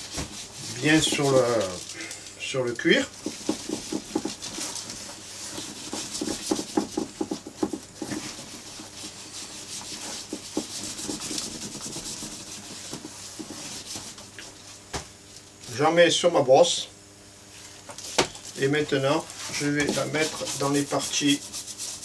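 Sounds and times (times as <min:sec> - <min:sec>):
hand rubbing cream on leather: 0:00.0 - 0:01.8, 0:03.2 - 0:14.2, 0:19.5 - 0:22.0.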